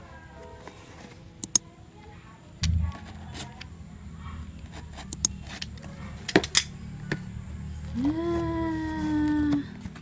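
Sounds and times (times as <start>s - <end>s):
sharp clicks: 1.4s - 1.6s
low thump of handling: 2.6s - 3.6s.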